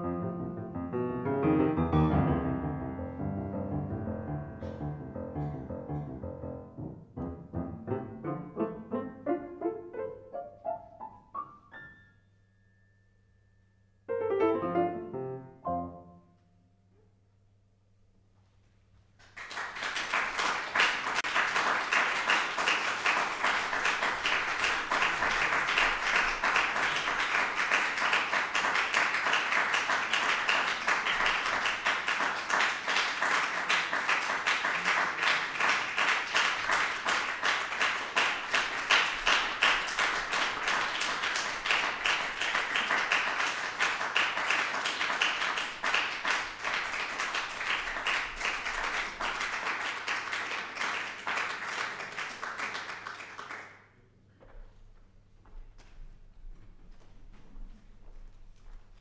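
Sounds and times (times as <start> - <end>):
audience applauding: 19.2 - 53.8.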